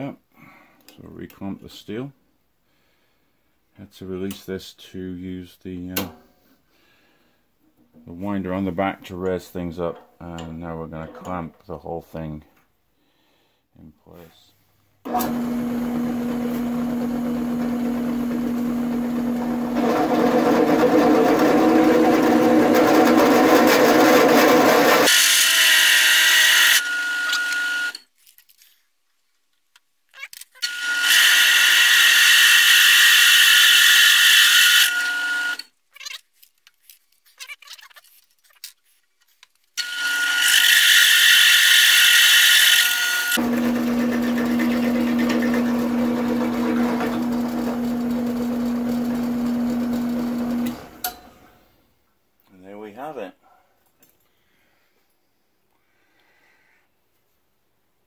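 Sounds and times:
drill press cutting steel: 15.1 - 28.0, 30.6 - 35.6, 39.8 - 51.2.

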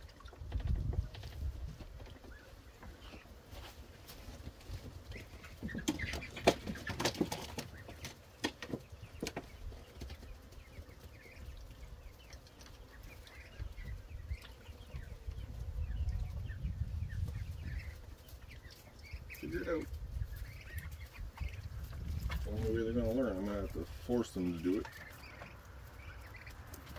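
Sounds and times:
birds chirping: 0.0 - 26.9.

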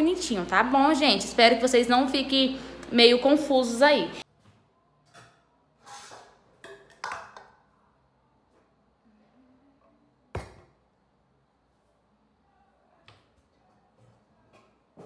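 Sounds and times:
pots and lids clinking: 5.1 - 7.6.

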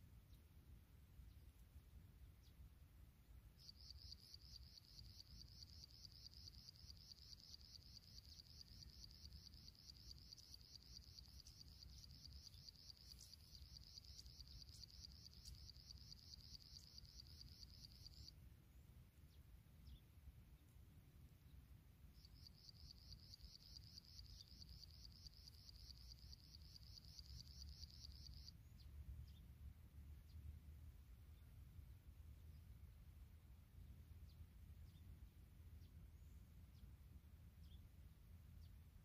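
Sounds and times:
insect trilling: 3.6 - 18.3, 22.2 - 28.5
faint low rumble: 28.6 - 39.0.

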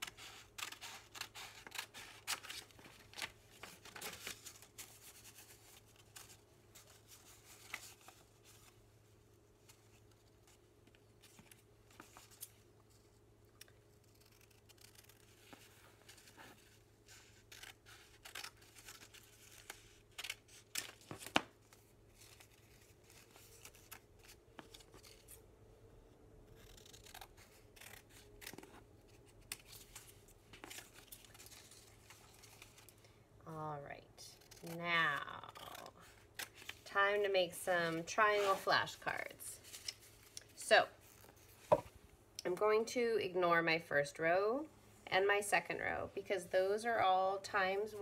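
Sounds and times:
scissors snipping paper: 13.6 - 15.6, 26.6 - 28.7, 34.3 - 36.7.

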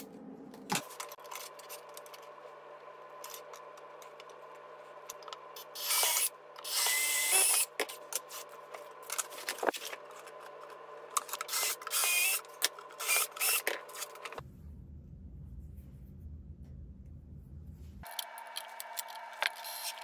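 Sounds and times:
cordless drill whining: 5.8 - 7.7, 11.5 - 14.1.

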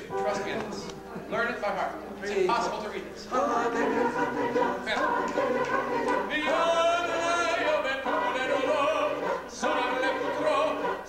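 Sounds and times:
choir singing held notes: 2.3 - 11.0.

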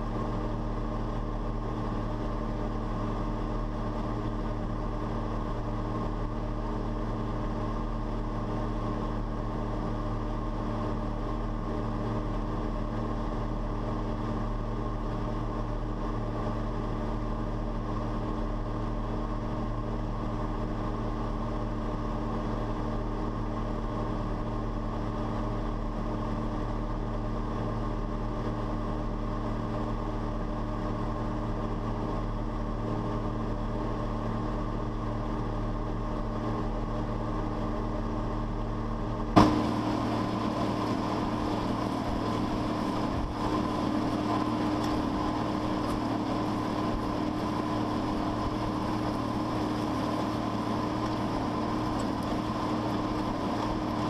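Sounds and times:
tractor diesel engine droning: 0.0 - 54.0
sudden pop: 39.3 - 41.3
disc harrow rushing noise: 39.4 - 54.0.

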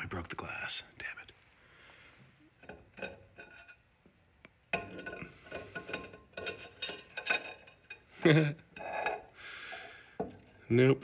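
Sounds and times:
glass clinking: 2.6 - 3.9, 4.6 - 9.4.

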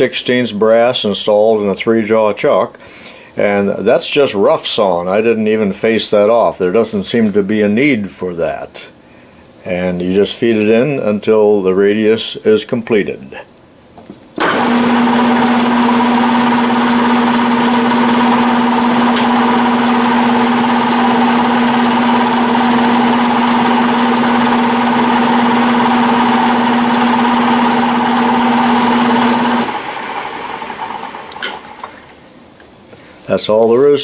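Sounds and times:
lathe humming: 14.4 - 31.9
clicks: 31.3 - 32.7.

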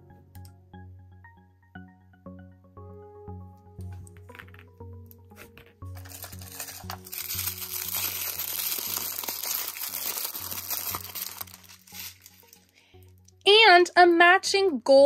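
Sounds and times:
tissue paper crinkling: 5.9 - 12.8.

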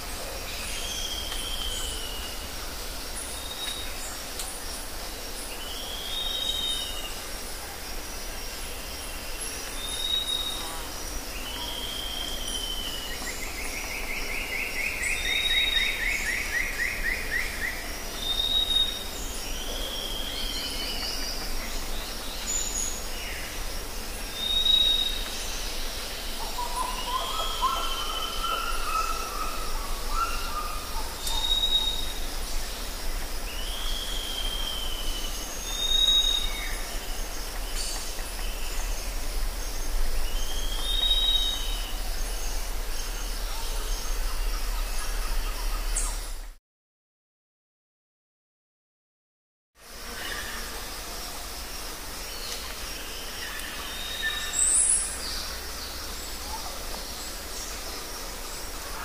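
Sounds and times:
background hiss: 0.0 - 46.5, 49.8 - 59.0
curved whistled bird call: 26.6 - 32.2, 33.6 - 36.8, 40.3 - 42.0
lower bird calls: 33.5 - 46.5.

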